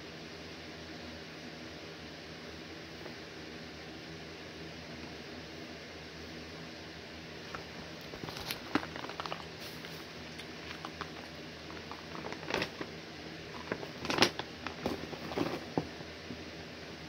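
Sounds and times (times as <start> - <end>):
rustling: 7.5 - 16.0.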